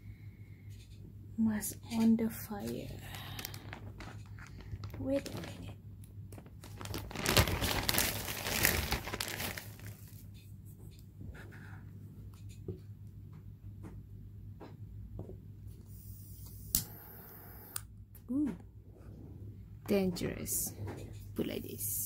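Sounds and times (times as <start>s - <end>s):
rustling and crinkling: 1.8s - 10.9s.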